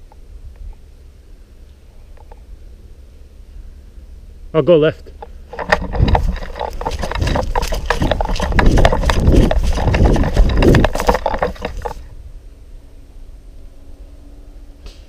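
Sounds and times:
footsteps through undergrowth: 5.2 - 12.1
gear rattling and knocking: 5.2 - 12.1.

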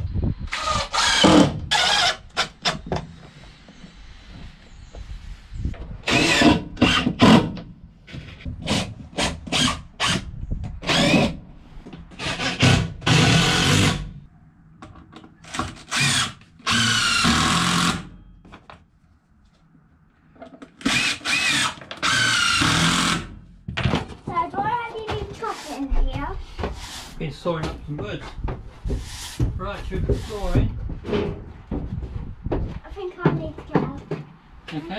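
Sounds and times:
cordless drill driving screws: 0.5 - 2.8, 6.0 - 7.5, 8.7 - 11.4, 12.2 - 14.1, 15.5 - 18.1, 20.8 - 23.4.

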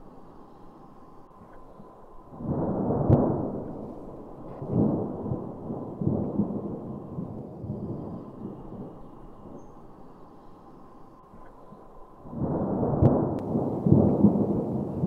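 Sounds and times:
thunder rumbling and cracking: 2.3 - 9.6, 12.2 - 15.0.

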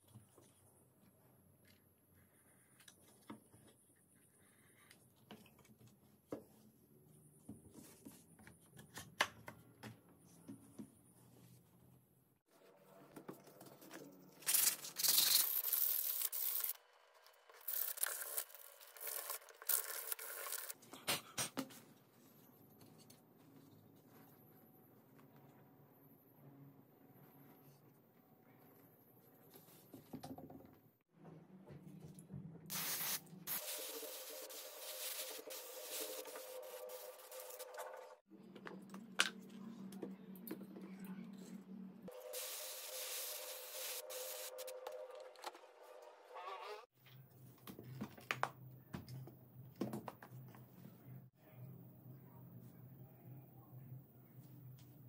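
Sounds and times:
hissing noise: 32.7 - 37.8.

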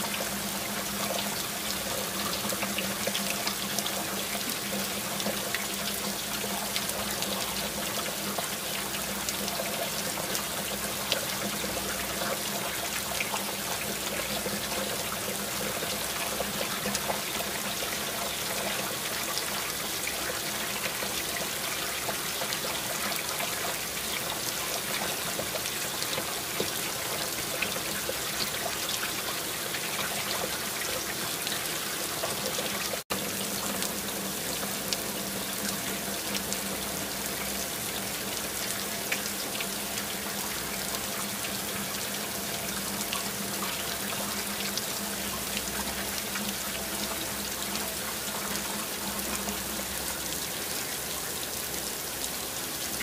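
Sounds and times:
steady rain with ticking drops: 0.0 - 53.0.

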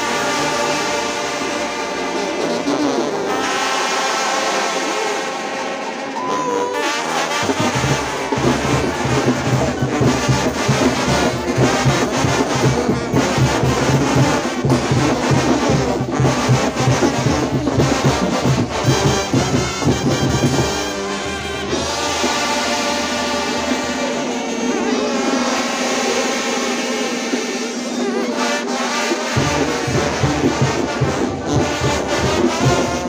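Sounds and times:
brass bands playing: 0.0 - 33.0.

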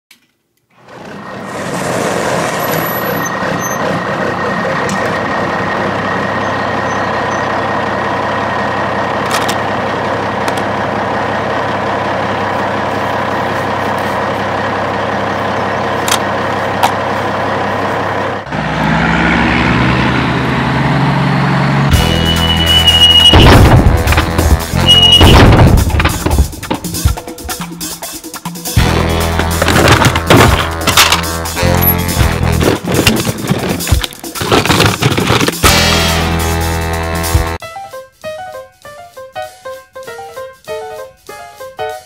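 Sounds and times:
truck engine running: 0.8 - 37.6
music: 21.9 - 42.0.

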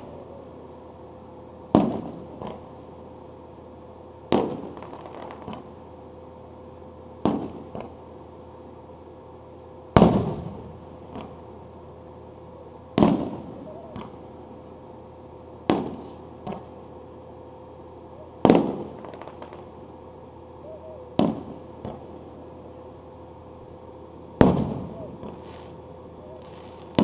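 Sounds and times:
firework shells booming: 1.7 - 2.7, 4.3 - 5.7, 7.2 - 8.0, 9.9 - 11.4, 12.9 - 14.2, 15.6 - 16.7, 18.4 - 19.7, 21.1 - 22.1, 24.4 - 25.5.

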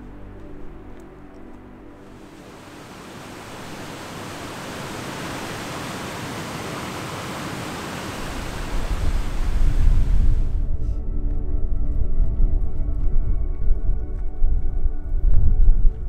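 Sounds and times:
waterfall rushing into pool: 2.2 - 10.5
deep low rumble: 8.4 - 16.0.

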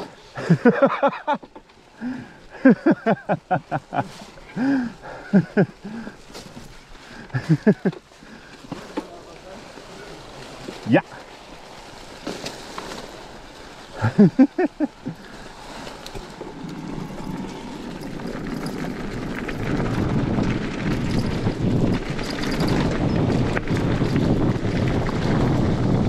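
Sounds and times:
tyres rolling over dirt trail: 0.0 - 26.0
wind buffeting microphone: 16.3 - 26.0.

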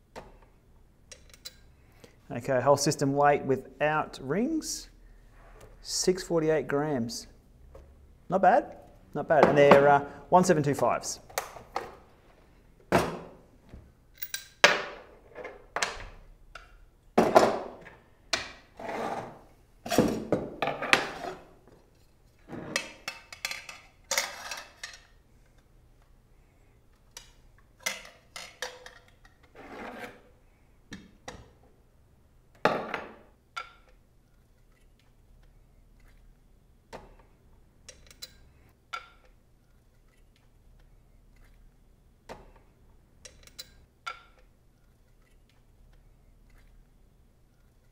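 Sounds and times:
metal parts clinking and scraping: 22.9 - 25.2.

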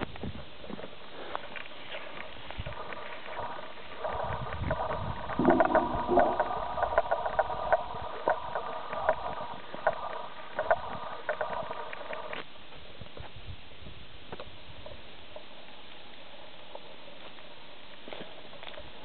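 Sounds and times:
steady hum: 2.4 - 12.7.

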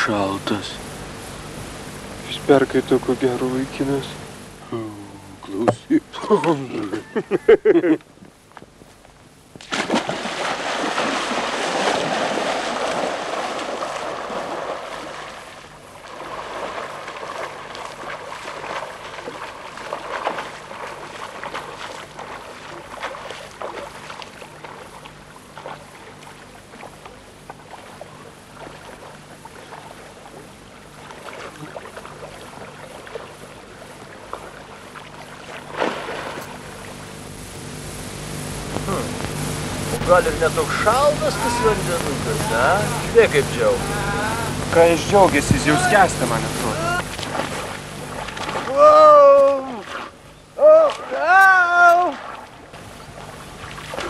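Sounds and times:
person splashing in lake water: 9.6 - 37.0, 47.0 - 54.0.

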